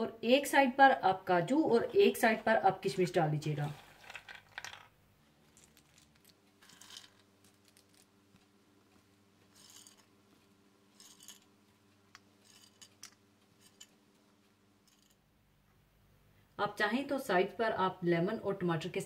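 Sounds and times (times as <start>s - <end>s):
faint steady hum: 0.0s - 19.0s
soft scrapes and clicks of food: 5.4s - 14.0s.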